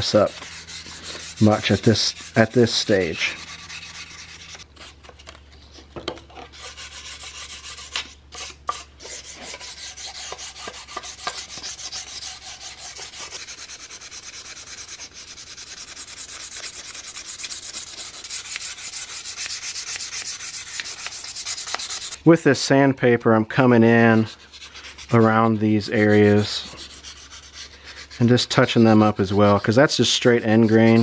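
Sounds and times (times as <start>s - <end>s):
sandpaper rubbing on wood: 0.0s - 4.6s, 6.5s - 22.2s, 24.0s - 31.0s.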